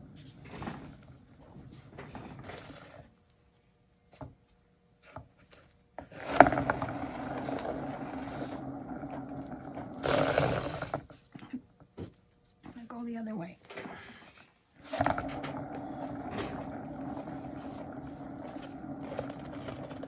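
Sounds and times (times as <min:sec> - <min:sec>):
turntable rumbling and scraping: 0:06.0 - 0:11.6, 0:13.7 - 0:20.0.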